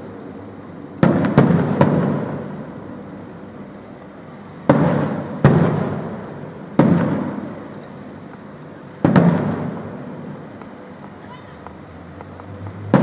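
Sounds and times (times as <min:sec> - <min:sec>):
firework shells bursting: 0:01.0 - 0:02.8, 0:04.6 - 0:08.4, 0:09.0 - 0:10.8.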